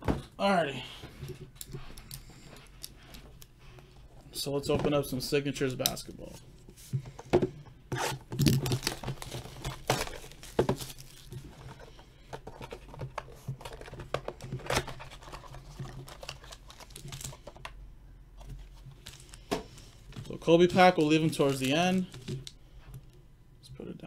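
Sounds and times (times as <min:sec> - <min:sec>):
foil packs and cards crinkling: 0:08.3 - 0:17.7, 0:18.5 - 0:22.6.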